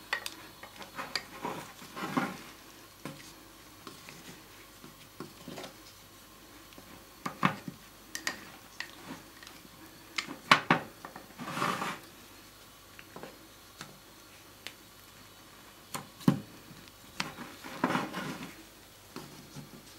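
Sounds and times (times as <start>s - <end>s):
spatula scrape: 0.7s - 3.3s, 11.3s - 12.1s, 17.2s - 18.6s.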